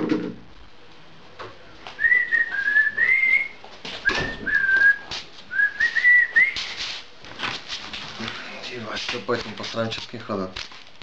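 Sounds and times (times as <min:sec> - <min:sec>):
person whistling a tune: 0:02.0 - 0:06.8.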